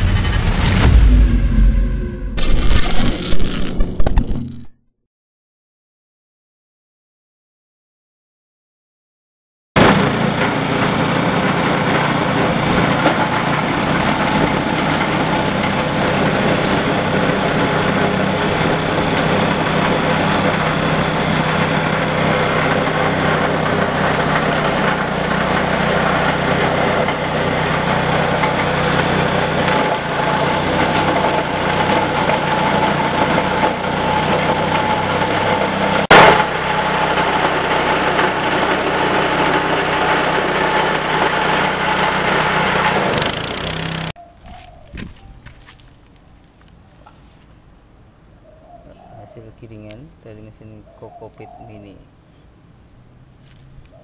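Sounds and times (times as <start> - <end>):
petrol engine running under load: 9.8 - 44.1
grinder shredding husks: 9.8 - 44.2
sharp loud crack: 36.1 - 36.8.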